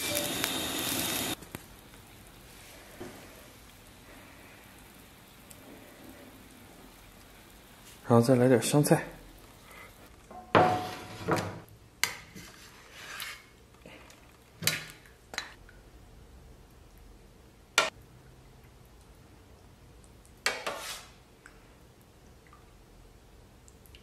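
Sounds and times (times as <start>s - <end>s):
dishes clinking and knocking: 10.3s - 11.6s.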